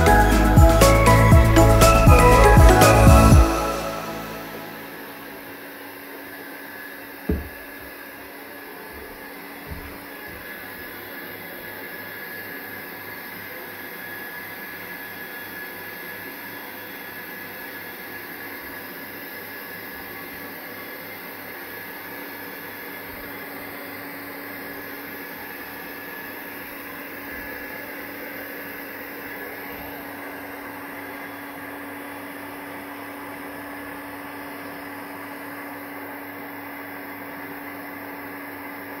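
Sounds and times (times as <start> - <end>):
steady machine hum: 0.0 - 10.5.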